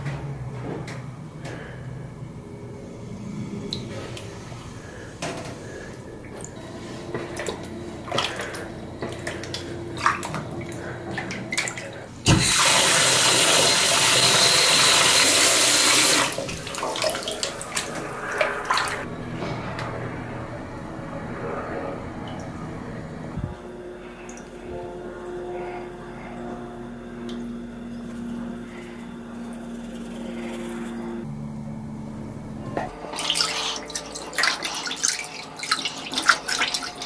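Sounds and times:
water sloshing and splashing: 3.6s - 12.9s, 15.6s - 20.0s, 32.8s - 37.0s
tap water running: 3.6s - 19.1s, 32.8s - 37.0s.

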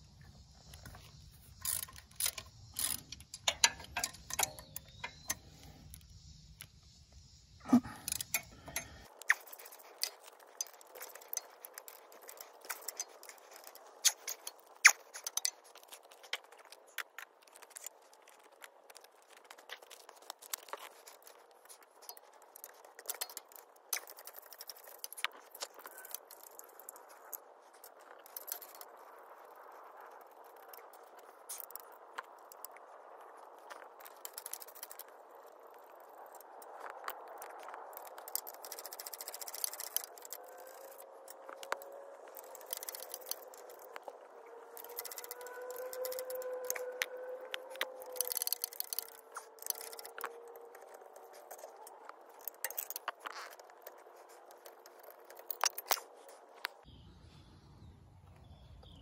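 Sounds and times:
socket wrench clicking: 1.1s - 6.1s, 8.0s - 15.5s.

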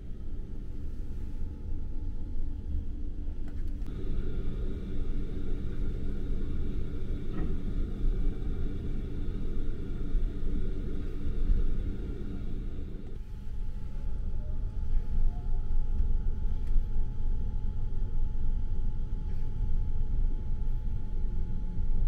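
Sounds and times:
faint high hum: 0.0s - 22.0s
train low rumble: 0.0s - 22.0s.

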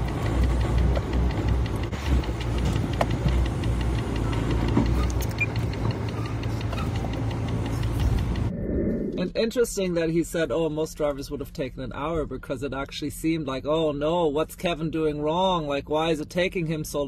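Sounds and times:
ticks and rattles in cab: 0.0s - 8.5s
truck diesel engine drone: 0.0s - 9.6s.

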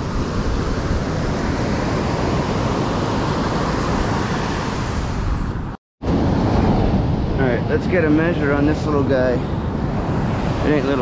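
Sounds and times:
wind buffeting microphone: 0.0s - 11.0s
breaking surf: 6.0s - 11.0s.

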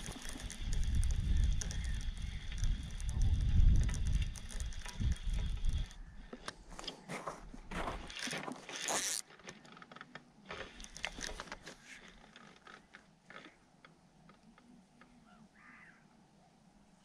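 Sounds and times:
fishing reel winding: 0.0s - 6.1s, 8.1s - 9.3s.

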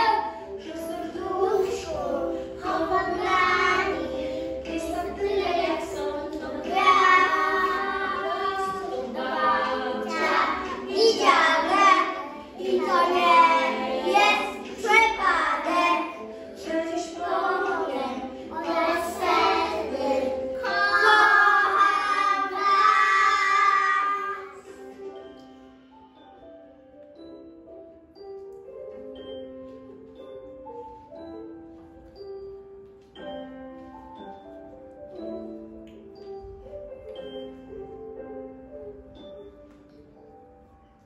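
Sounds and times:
children singing in unison: 1.2s - 24.8s.

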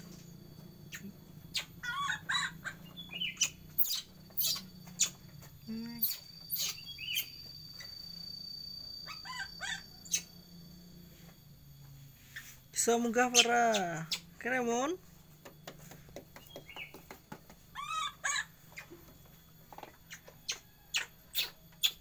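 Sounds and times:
baby monkey squeaking and chirping: 0.9s - 5.2s, 5.9s - 7.9s, 9.0s - 10.4s, 13.3s - 14.3s, 17.7s - 18.9s, 20.1s - 22.0s.

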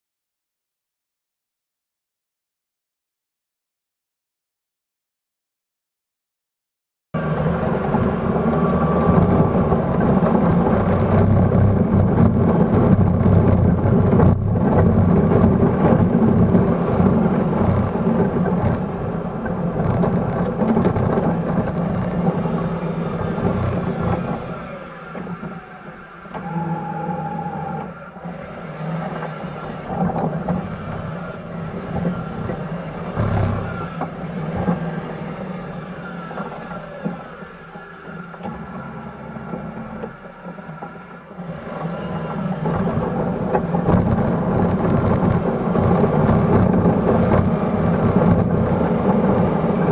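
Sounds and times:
truck engine under load: 7.2s - 49.9s.

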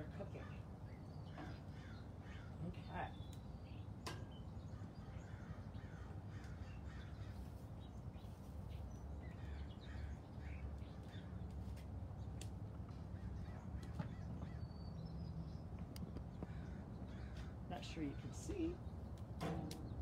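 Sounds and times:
crows cawing: 1.3s - 2.7s, 4.8s - 7.6s, 9.4s - 11.3s, 13.0s - 14.7s, 16.3s - 17.7s.

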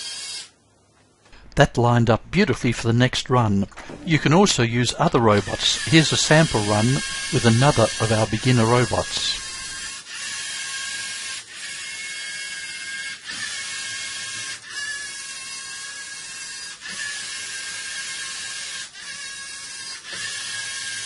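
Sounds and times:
robot servo motors whirring: 5.0s - 21.0s.

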